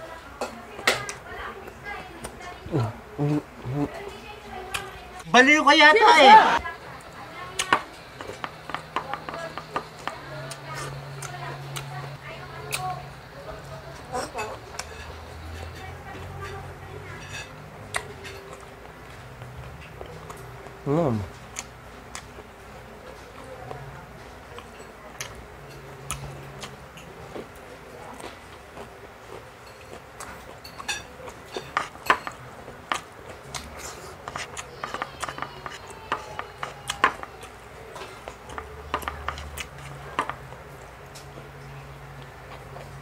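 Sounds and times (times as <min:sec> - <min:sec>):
cutlery clinking on plate: 0:29.6 - 0:37.3.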